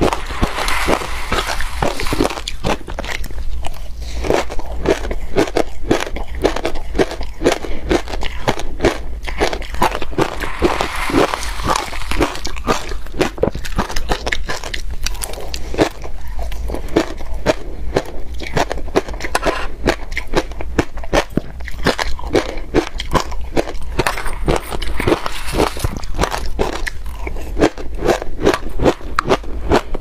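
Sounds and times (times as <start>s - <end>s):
crushed ice crunching: 0.0s - 3.3s, 9.7s - 15.3s, 24.0s - 26.8s.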